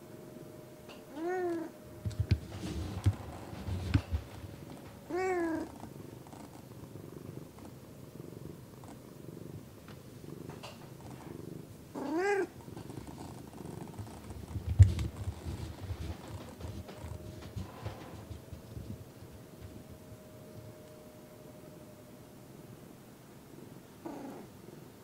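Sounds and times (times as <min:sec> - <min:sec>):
cat purring: 0:00.9 - 0:21.0, 0:22.6 - 0:25.0
soft knocks: 0:02.0 - 0:05.0, 0:14.0 - 0:19.9
cat meowing: 0:05.1 - 0:05.7, 0:12.0 - 0:12.5.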